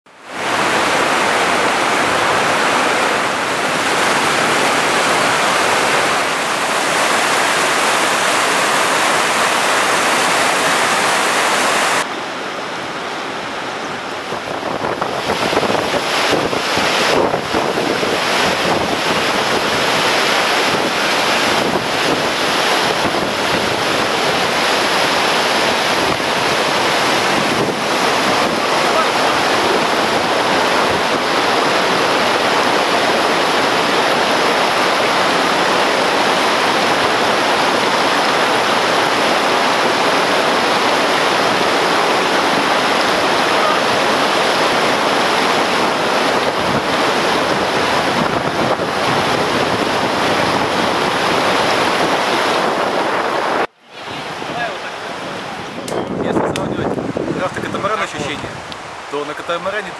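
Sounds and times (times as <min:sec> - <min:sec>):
whitewater rushing over boulders: 0:00.1 - 0:59.9.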